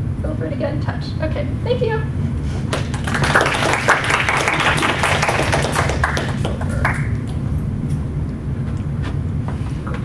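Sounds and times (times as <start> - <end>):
low room hum: 0.0 - 10.0
audience applauding: 2.7 - 7.4.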